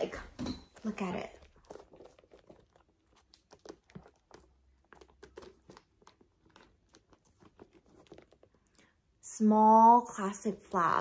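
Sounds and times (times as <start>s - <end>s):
handbag rustling and clicks: 1.0s - 8.8s.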